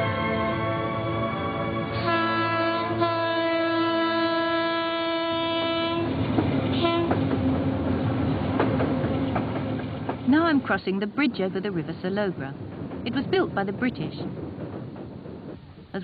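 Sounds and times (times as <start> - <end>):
diesel locomotive horn: 0.0 - 7.2
train rumbling over bridge: 0.0 - 16.0
wheels clicking over rail joints: 5.8 - 16.0.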